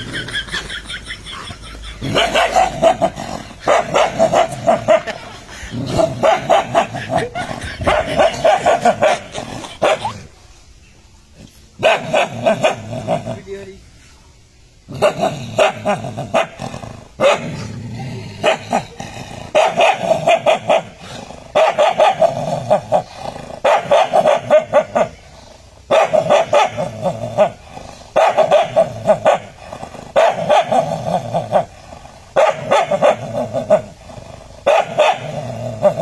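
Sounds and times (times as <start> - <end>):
dog barking: 2.0 - 5.2, 6.2 - 10.1, 11.8 - 12.8, 17.2 - 17.6, 19.6 - 20.9, 21.6 - 22.4, 23.6 - 25.2, 25.9 - 26.9, 28.2 - 29.5, 30.2 - 30.9, 32.4 - 33.8, 34.6 - 35.4.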